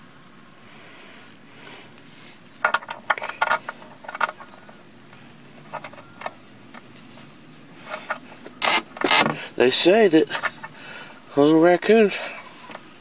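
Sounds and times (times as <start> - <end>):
metal latch clicking and rattling: 2.6 - 4.5, 5.7 - 6.8, 10.3 - 10.7.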